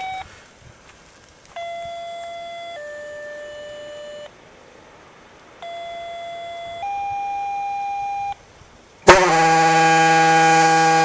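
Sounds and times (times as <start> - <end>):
two-tone paging beeps: 0.0 - 0.3, 1.5 - 4.3, 5.6 - 8.4
fire horn blast: 9.0 - 11.0.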